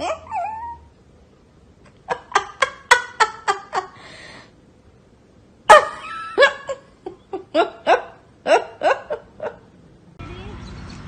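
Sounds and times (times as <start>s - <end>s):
person laughing hard: 2.0s - 4.0s, 5.7s - 9.6s.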